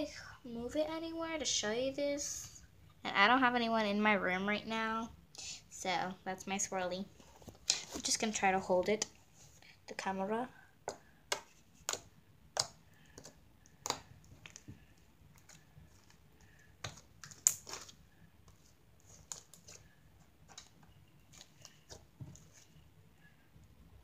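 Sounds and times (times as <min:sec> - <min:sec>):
slime squishing with clicks and pops: 0:10.8 - 0:18.0.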